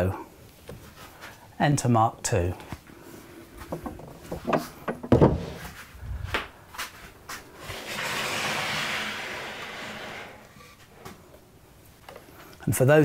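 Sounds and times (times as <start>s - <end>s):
wooden knocks and clunks: 3.6s - 6.5s
wood scraping on wood: 6.8s - 11.2s.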